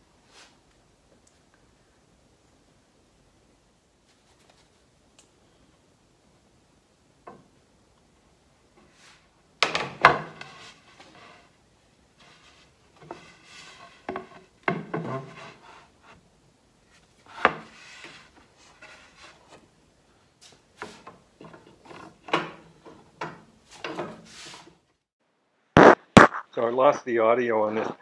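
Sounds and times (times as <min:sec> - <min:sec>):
wood rubbing against wood: 0:12.2 - 0:16.2.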